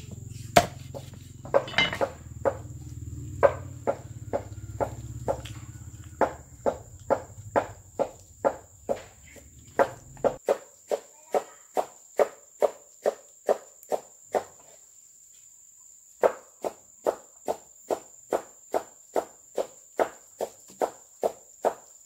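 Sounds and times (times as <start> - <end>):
cleaver chopping fish on wood: 0.5 - 2.7, 3.4 - 5.4, 6.2 - 9.1, 9.8 - 10.4.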